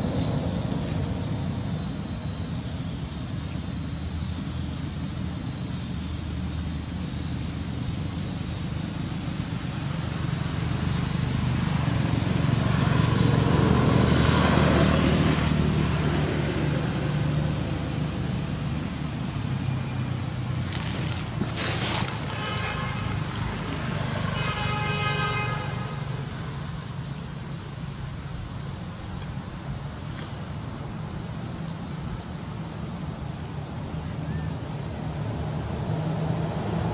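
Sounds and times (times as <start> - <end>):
vehicle passing: 9.8 - 27.0
vehicle horn tone: 21.8 - 26.1.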